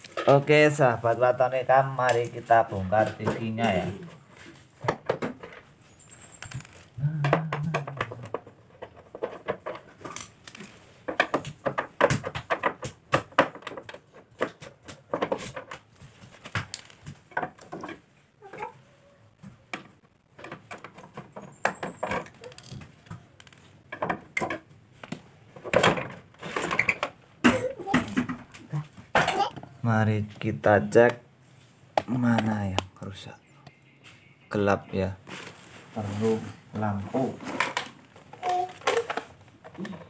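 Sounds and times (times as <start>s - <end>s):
plastic clicks and knocks: 6.6s - 18.0s, 19.7s - 29.7s.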